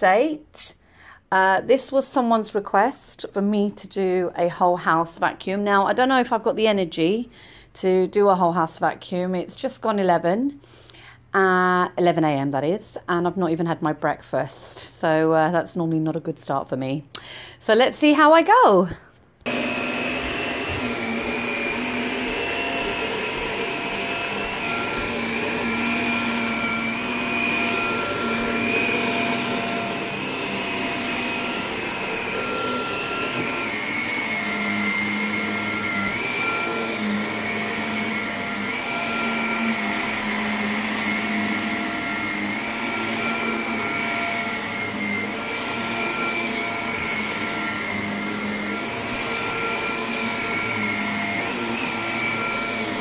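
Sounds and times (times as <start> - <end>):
vacuum cleaner motor whine: 19.4 - 53.0.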